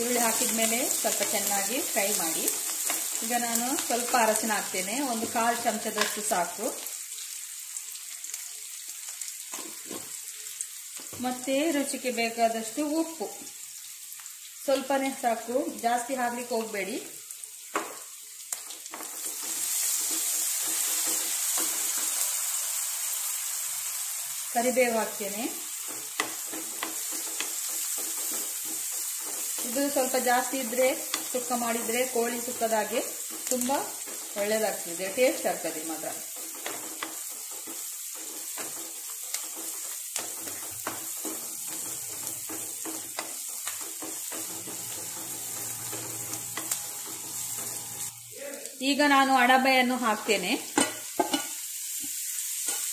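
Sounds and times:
onions sizzling in oil: 0:00.0 - 0:52.9
wooden spatula scraping a pan: 0:18.9 - 0:22.4, 0:25.7 - 0:34.9, 0:35.8 - 0:48.1.

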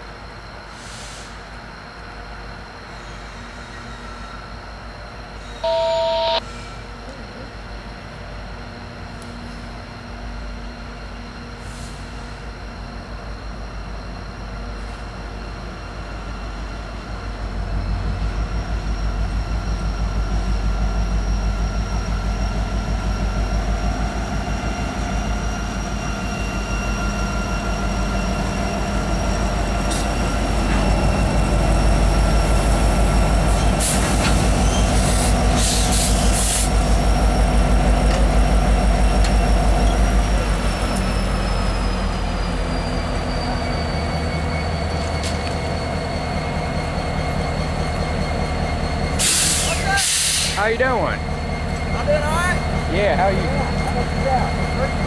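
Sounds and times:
diesel locomotive rumble: 0:05.1 - 0:55.0
high-pitched whine: 0:05.6 - 0:06.5
hiss bursts: 0:33.7 - 0:36.8, 0:49.2 - 0:50.6.

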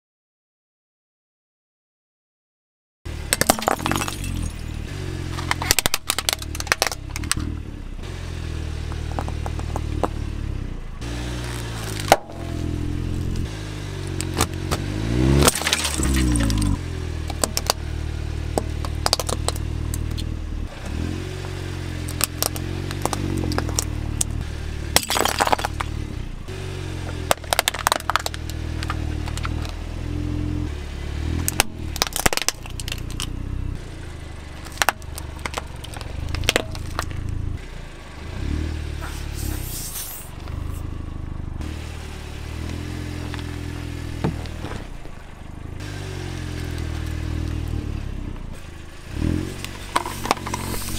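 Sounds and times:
low engine hum: 0:03.1 - 0:50.9
tyre crushing plastic toys: 0:03.3 - 0:04.6, 0:05.4 - 0:07.4, 0:15.4 - 0:17.8, 0:25.0 - 0:25.9, 0:27.3 - 0:29.8, 0:31.5 - 0:33.3, 0:34.6 - 0:37.2.

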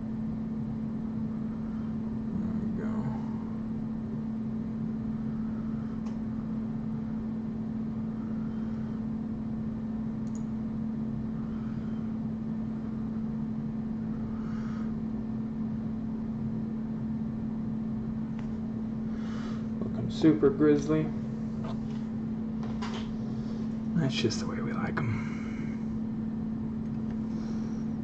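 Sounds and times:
steady machine hum: 0:00.0 - 0:28.0
faint click: 0:10.2 - 0:10.5.

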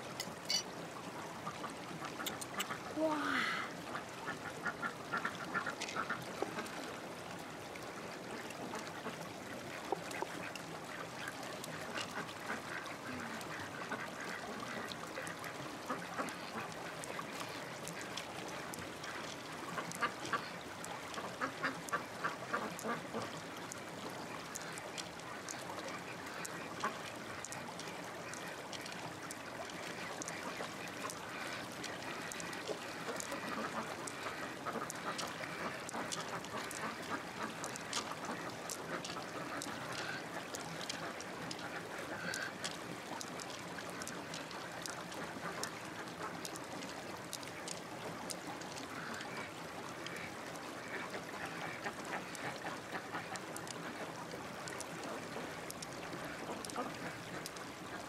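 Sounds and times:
ducks quacking: 0:30.0 - 0:42.7, 0:56.2 - 0:57.4.

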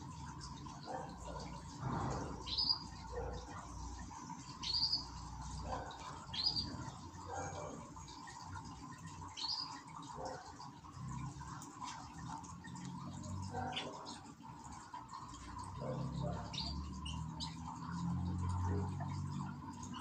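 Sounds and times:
faint steady background tone: 0:00.0 - 0:20.0
canaries chirping: 0:00.9 - 0:07.6, 0:15.8 - 0:18.2.

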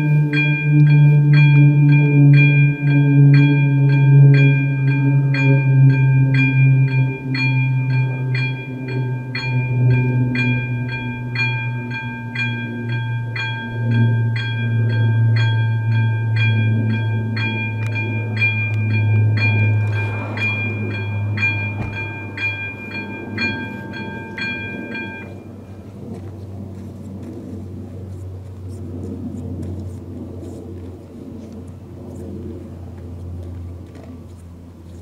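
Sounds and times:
level crossing bell ringing: 0:00.0 - 0:25.6
low rumble: 0:00.0 - 0:34.3.

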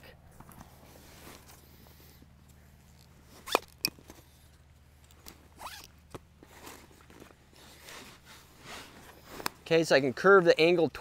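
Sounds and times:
fabric scraping and rustling: 0:06.4 - 0:09.8.

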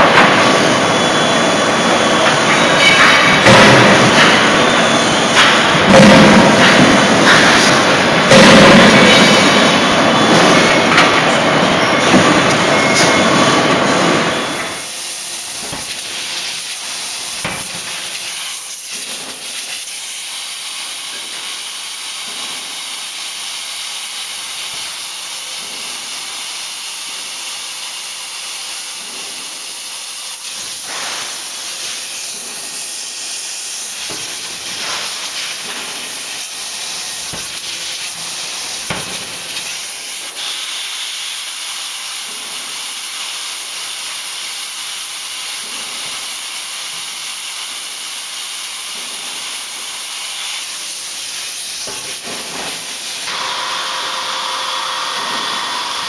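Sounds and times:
machinery clattering rush: 0:00.0 - 0:19.7.

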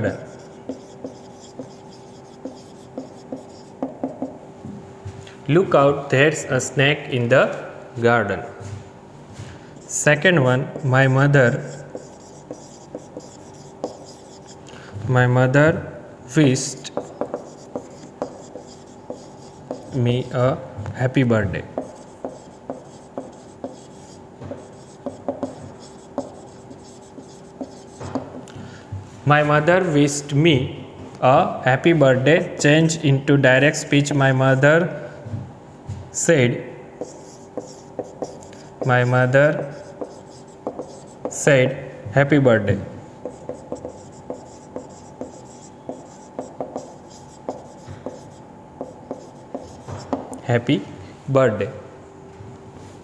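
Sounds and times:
marker pen writing on whiteboard: 0:00.0 - 0:04.4, 0:09.8 - 0:14.6, 0:16.7 - 0:20.5, 0:21.2 - 0:28.7, 0:37.0 - 0:41.5, 0:43.2 - 0:50.4.

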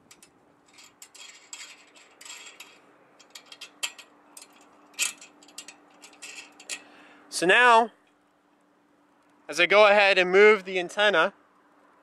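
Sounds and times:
metallic clicks of clamp bolts: 0:00.0 - 0:06.9.

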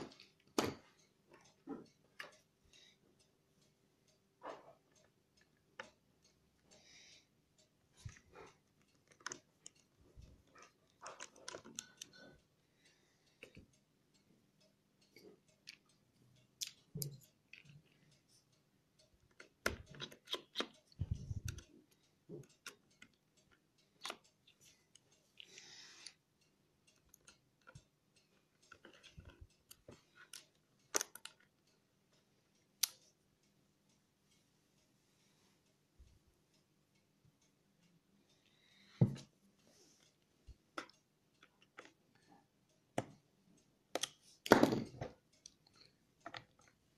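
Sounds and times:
light clicks and taps: 0:00.0 - 0:33.6, 0:34.3 - 0:46.9.

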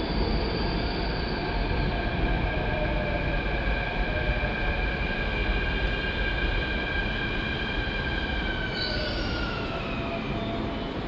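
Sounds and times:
high brake squeal: 0:00.0 - 0:01.5, 0:08.6 - 0:11.0.

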